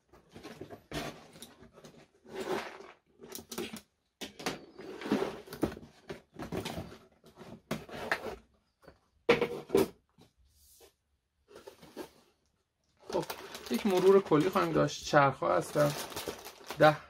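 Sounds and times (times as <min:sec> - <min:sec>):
cardboard scraping and rustling: 0:00.1 - 0:03.0, 0:04.6 - 0:08.8, 0:11.4 - 0:12.4.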